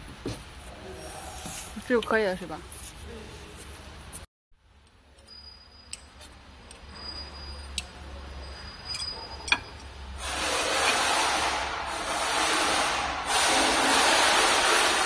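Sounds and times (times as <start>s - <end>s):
loud rushing noise: 10.2s - 15.0s.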